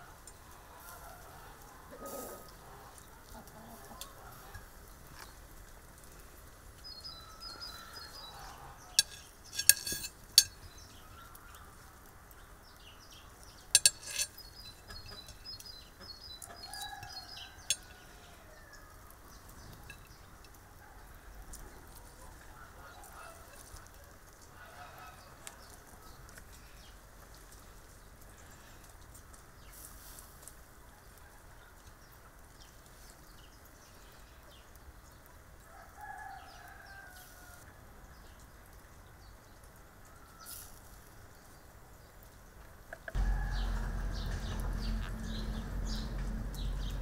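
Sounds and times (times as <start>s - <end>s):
chickens clucking: 0.8s - 4.7s, 14.8s - 16.8s
metal skewer clinking on plate: 9.0s - 10.6s, 13.8s - 15.5s, 17.0s - 18.0s.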